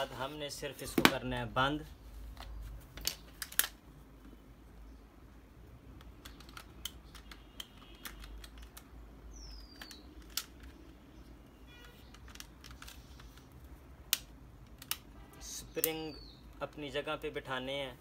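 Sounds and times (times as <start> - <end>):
plastic clicks and taps: 5.9 - 8.9.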